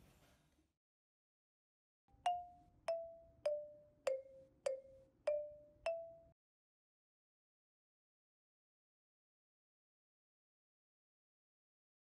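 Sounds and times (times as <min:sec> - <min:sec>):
jingle of struck notes: 0:02.3 - 0:06.4.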